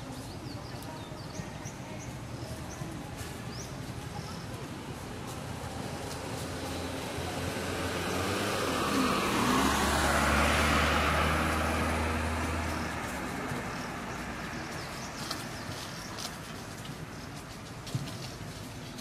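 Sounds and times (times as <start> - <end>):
vehicle passing by: 4.2 - 17.2.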